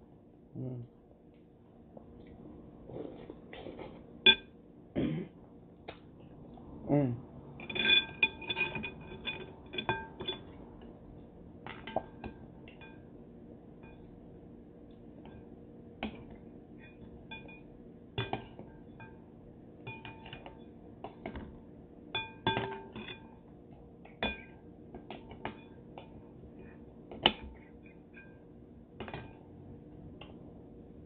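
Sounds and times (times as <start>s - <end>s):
clinks on glass bowl: 7.6s - 10.6s, 11.7s - 13.1s, 16.8s - 21.4s, 22.2s - 23.4s, 24.1s - 26.2s, 27.4s - 28.4s.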